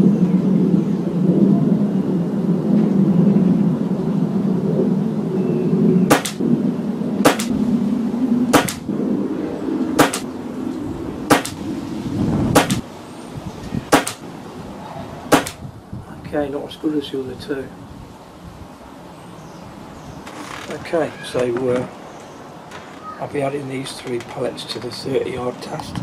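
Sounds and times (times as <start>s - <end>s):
air rifle shots cracking: 6.1s - 6.4s, 7.2s - 7.6s, 8.5s - 8.9s, 10.0s - 10.3s, 11.3s - 11.6s, 12.5s - 12.8s, 13.9s - 14.3s, 15.3s - 15.6s.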